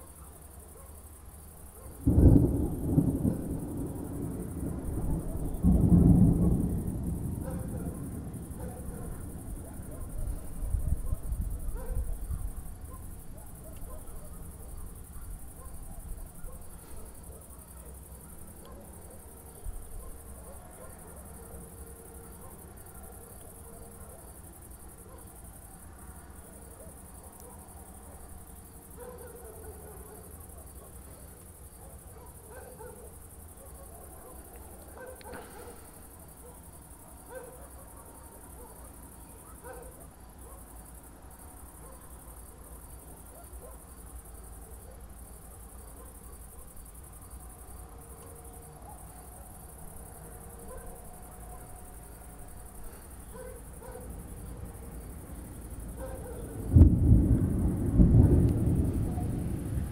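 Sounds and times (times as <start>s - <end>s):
crickets chirping: 0.0s - 59.9s
thunder rumbling: 2.0s - 13.4s, 54.2s - 59.9s.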